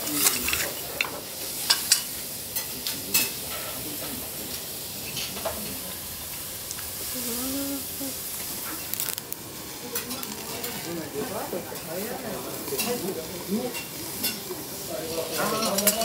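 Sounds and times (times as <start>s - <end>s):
utensils clicking and clinking: 0.0s - 3.8s, 15.1s - 16.0s
food sizzling on griddle: 0.0s - 16.0s.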